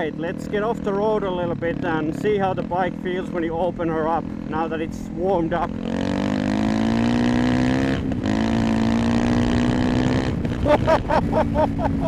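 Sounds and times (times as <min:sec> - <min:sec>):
motorcycle engine accelerating hard: 0:00.0 - 0:12.0.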